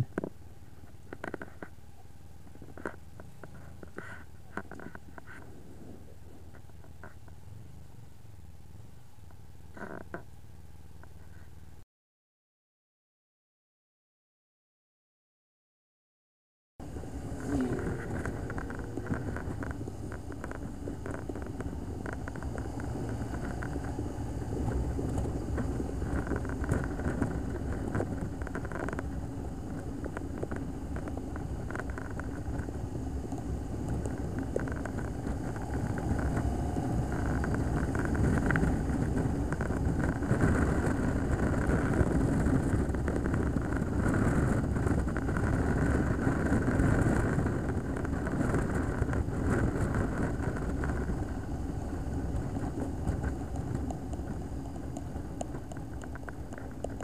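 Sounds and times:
road and wind noise: 0.0 - 11.8, 16.8 - 57.0
motorcycle engine: 16.8 - 57.0.

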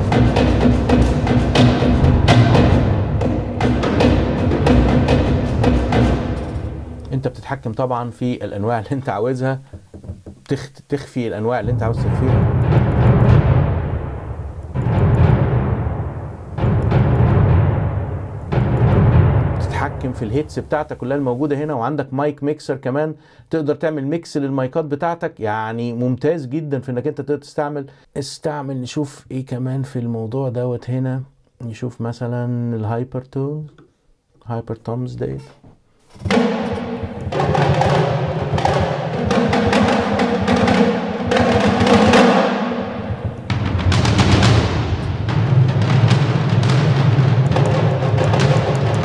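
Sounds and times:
deep booming orchestral drum hit: 0.0 - 7.6, 11.6 - 21.2, 36.2 - 49.0.

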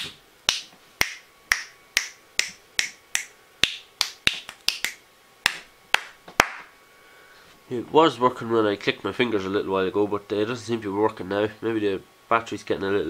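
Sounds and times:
fingers snapping: 0.0 - 6.7.

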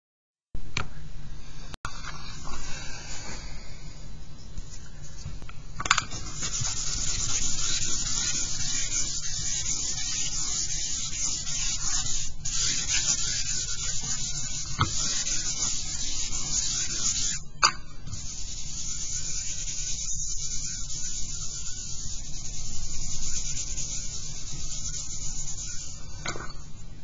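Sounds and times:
charcoal scratching on paper: 6.2 - 17.4, 18.2 - 26.2.

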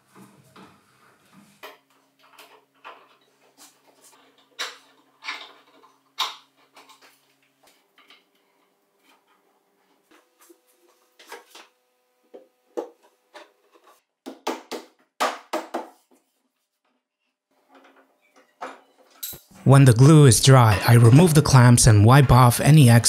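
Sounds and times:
wooden parts and clamps clicking: 1.6 - 9.4, 17.6 - 19.5.

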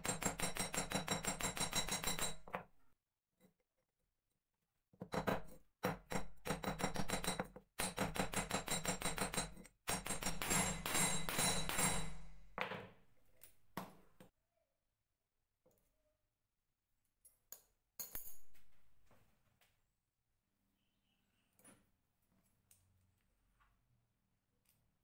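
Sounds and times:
hammer striking metal on anvil: 7.8 - 12.4.

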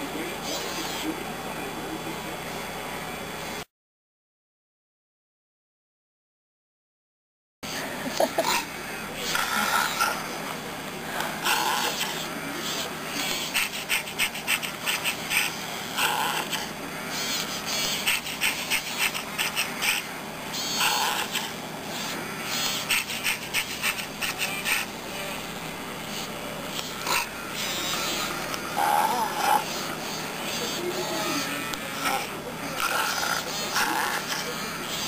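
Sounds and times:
robot toy animal calls: 8.1 - 10.4, 11.4 - 35.0
rapid clicking and gnawing: 8.2 - 35.0.

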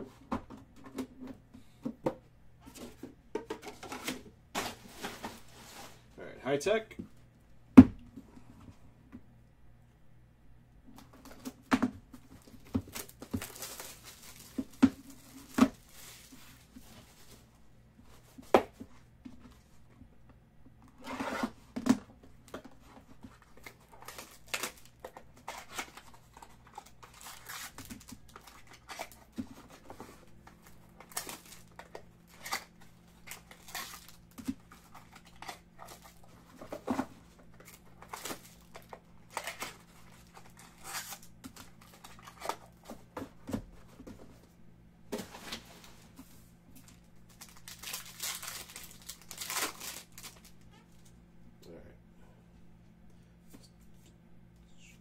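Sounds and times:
wrapper tearing and crinkling: 12.4 - 16.4, 23.6 - 29.2, 31.0 - 36.2, 37.6 - 42.7, 46.8 - 50.8.

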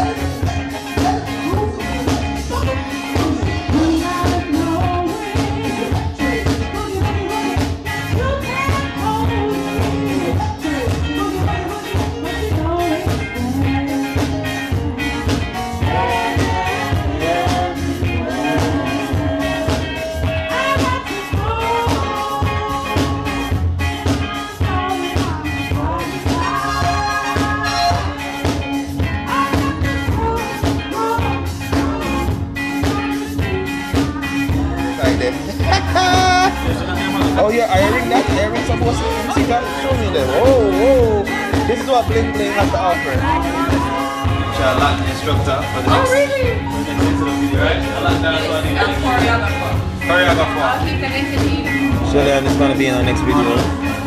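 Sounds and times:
person singing: 0.0 - 54.0
reggae band music: 0.0 - 54.0.

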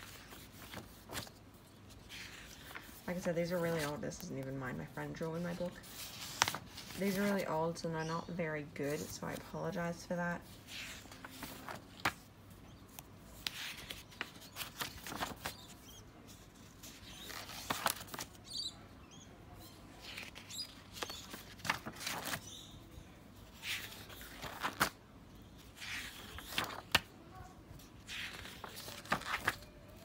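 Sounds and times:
paper pages rustling: 0.0 - 7.6, 8.8 - 12.3, 12.9 - 18.4, 20.0 - 22.5, 23.4 - 25.0, 25.6 - 27.1, 27.7 - 30.0.

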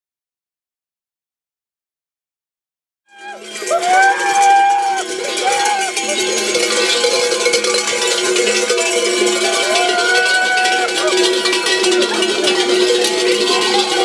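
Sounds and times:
cowbells jangling and clanging: 3.1 - 14.0
long held call: 3.1 - 14.0.

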